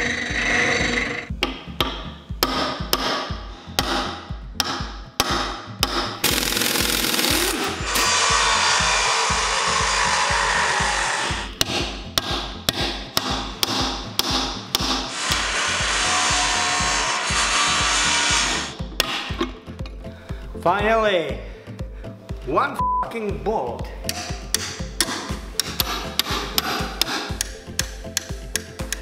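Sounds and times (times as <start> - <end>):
background music with beat: 1.2 - 29.0
sharp metal knocks: 1.4 - 6.3, 11.4 - 15.6, 18.8 - 19.6, 24.1 - 29.0
angle grinder cutting metal: 6.2 - 11.5, 15.1 - 18.8
hammer blows: 7.5 - 19.3.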